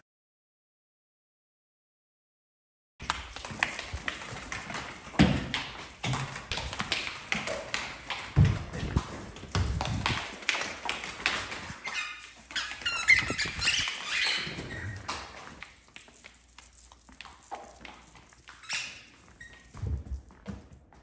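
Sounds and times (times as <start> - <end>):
dog paws tapping on hardwood: 3.0 - 21.0
high-pitched squeaks: 11.6 - 19.8.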